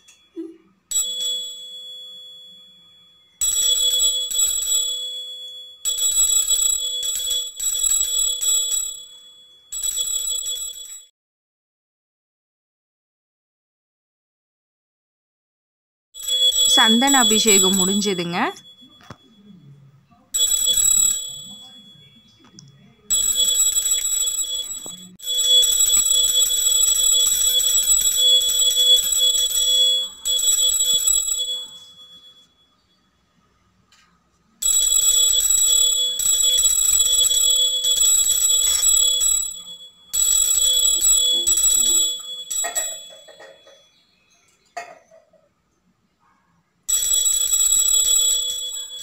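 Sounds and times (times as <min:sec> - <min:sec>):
hand bell ringing: 0:16.4 - 0:19.4, 0:37.2 - 0:44.1.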